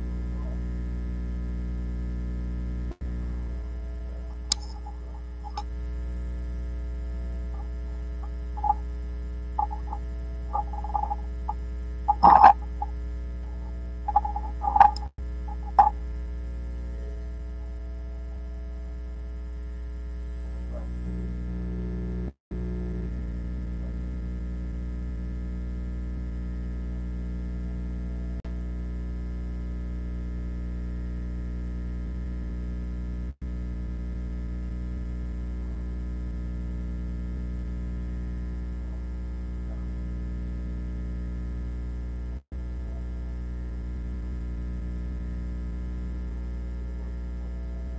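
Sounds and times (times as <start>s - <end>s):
electrical mains hum: 0.0s - 47.9s
high-pitched chirps: 3.6s - 5.7s, 7.5s - 8.9s, 9.6s - 16.0s.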